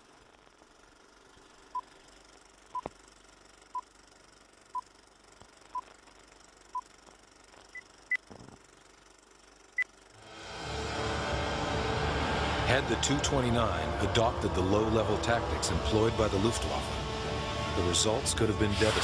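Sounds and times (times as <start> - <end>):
rushing noise: 10.2 - 19.0.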